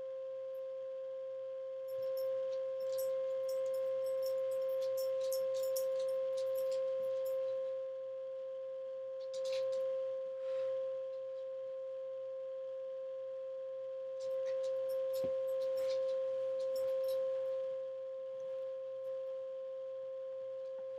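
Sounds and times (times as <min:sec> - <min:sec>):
steady pure tone: 0:00.0 - 0:20.9.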